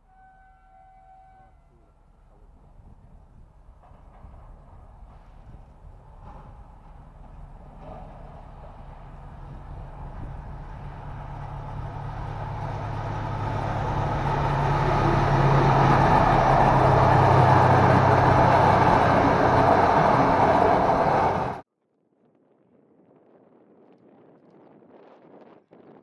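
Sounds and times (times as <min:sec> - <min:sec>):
locomotive engine hum: 0:00.0 - 0:21.6
train rolling rumble: 0:00.0 - 0:21.6.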